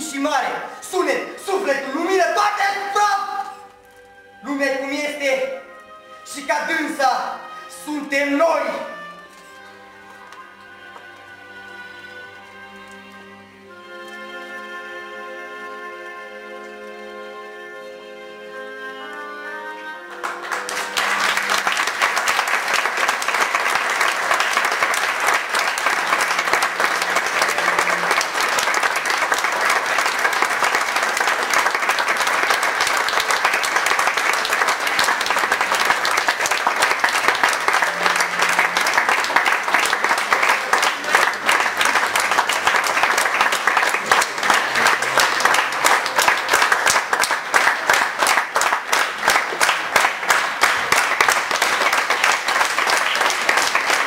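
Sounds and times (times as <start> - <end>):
closing music: 0.0 - 54.0
audience applauding: 20.0 - 54.0.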